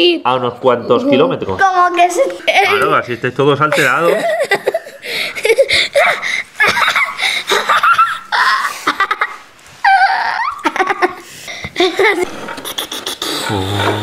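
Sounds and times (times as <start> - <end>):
children laughing and giggling: 2.1 - 3.0, 3.7 - 14.0.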